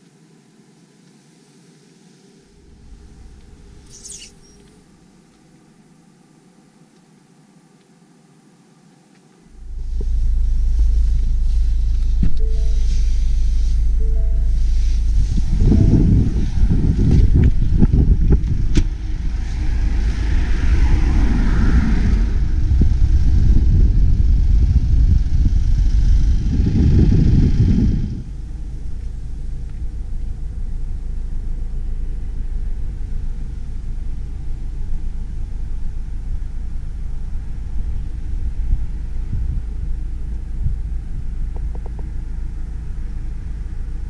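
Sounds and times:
wind buffeting microphone: 0:09.6 - 0:42.8.

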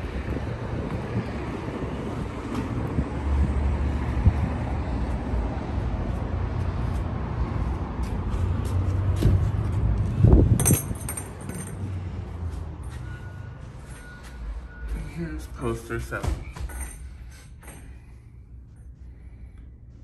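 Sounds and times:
wind buffeting microphone: 0:00.0 - 0:08.0, 0:09.1 - 0:11.1.

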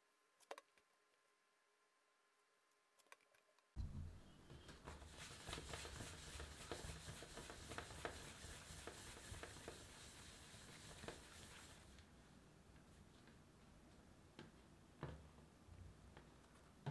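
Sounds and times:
hands rolling dough on surface: 0:03.8 - 0:12.1
small irregular taps: 0:03.8 - 0:12.1, 0:12.7 - 0:15.4.

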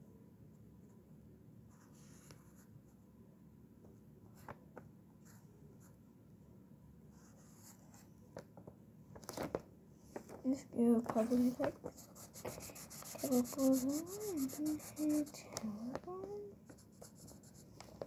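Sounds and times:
marker scratching on paper: 0:11.3 - 0:15.6, 0:16.6 - 0:18.0.

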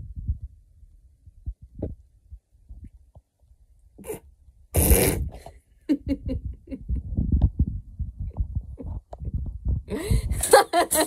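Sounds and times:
person giggling: 0:05.4 - 0:07.2, 0:09.9 - 0:11.0.

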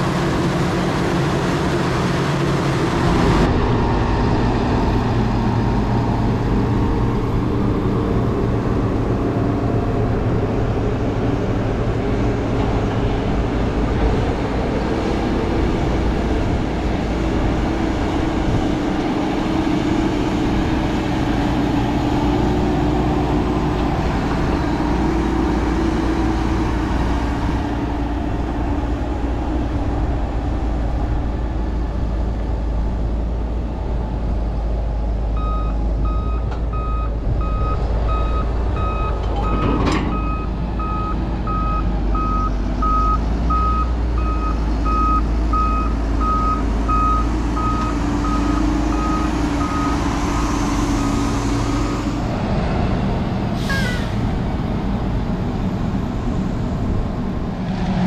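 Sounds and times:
tractor diesel engines under load: 0:00.0 - 0:58.0
reversing alarm beeping: 0:35.4 - 0:50.0.

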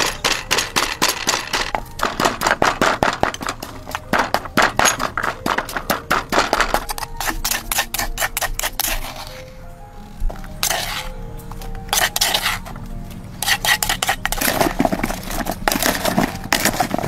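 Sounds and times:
wooden pestle pounding in mortar: 0:00.0 - 0:09.2, 0:13.4 - 0:17.0.

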